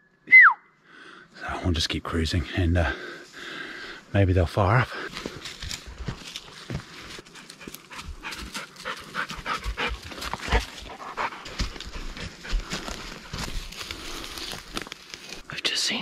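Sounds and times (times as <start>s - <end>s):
person breathing hard: 0.8s - 1.4s, 2.8s - 4.1s
footsteps on leaf litter: 5.1s - 9.0s, 10.0s - 15.5s.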